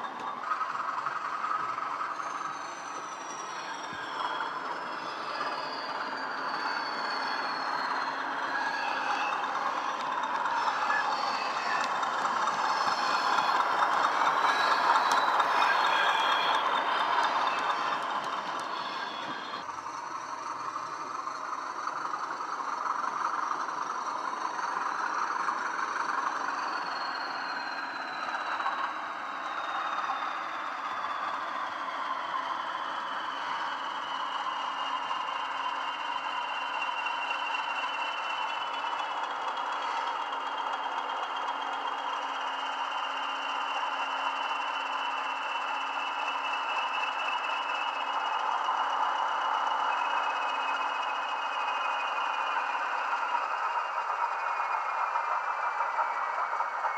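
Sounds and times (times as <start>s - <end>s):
model locomotive diesel engine sound: 0.0s - 56.9s
model wheels rolling on track: 0.0s - 56.9s
high whistle falling in pitch: 1.4s - 19.6s.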